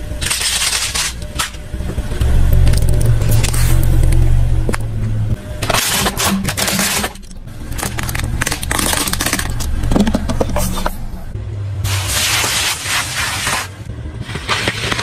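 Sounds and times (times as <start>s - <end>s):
car rumble: 1.2s - 5.8s, 6.5s - 11.9s
plastic crunching under tyre: 5.6s - 11.1s.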